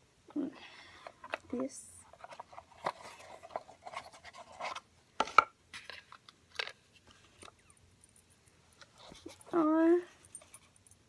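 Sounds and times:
box and packaging scraping: 0:02.1 - 0:04.9.

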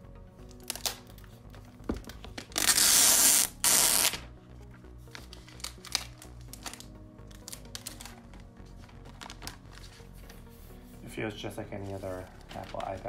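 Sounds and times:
background music with steady beat: 0:00.0 - 0:13.0
plastic sleeve ripping and rustling: 0:02.0 - 0:04.3, 0:05.0 - 0:10.4, 0:11.8 - 0:13.0.

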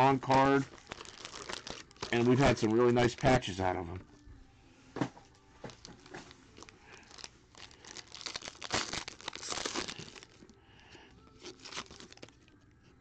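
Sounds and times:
foil wrapper crinkling and tearing: 0:00.0 - 0:03.3, 0:05.7 - 0:10.5, 0:11.2 - 0:12.5.

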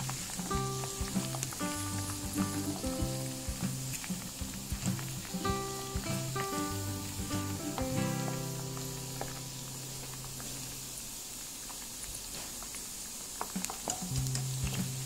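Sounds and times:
background music: 0:00.0 - 0:10.1
oil sizzling in a wok: 0:00.0 - 0:15.0.

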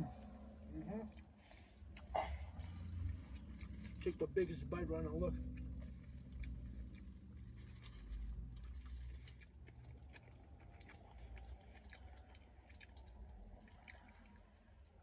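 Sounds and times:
person chewing food: 0:00.0 - 0:04.2, 0:05.3 - 0:15.0
biting into sandwich: 0:05.4 - 0:14.9.

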